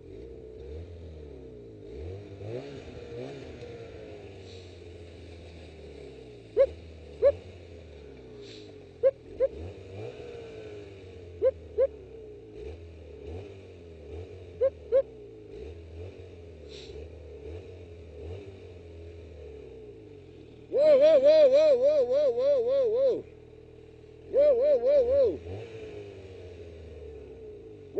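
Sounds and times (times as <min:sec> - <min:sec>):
snowmobile engine running: 0:01.6 - 0:12.6, 0:20.4 - 0:23.6.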